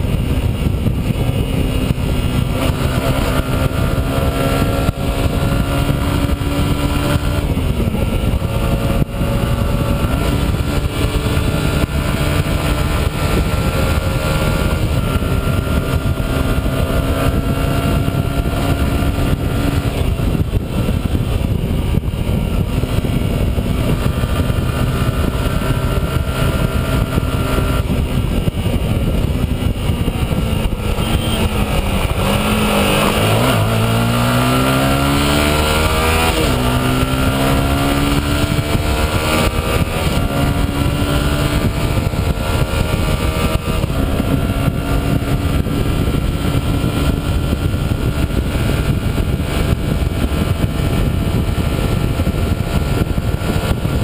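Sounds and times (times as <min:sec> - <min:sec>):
motorcycle engine at speed: 0:00.0 - 0:54.0
wind rushing on microphone: 0:00.0 - 0:54.0.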